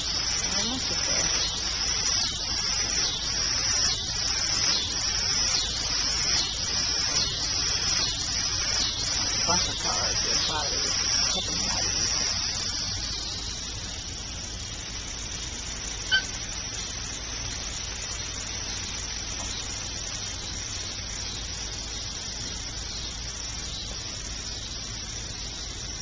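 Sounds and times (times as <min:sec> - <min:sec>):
steady background hiss: 0:00.0 - 0:26.0
puppy yelp: 0:16.1 - 0:16.4.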